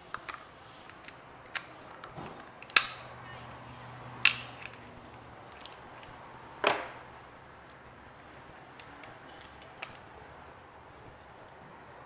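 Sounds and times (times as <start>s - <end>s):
lobster shell cracking: 0.9s - 1.7s
small shell clicks: 4.2s - 4.8s.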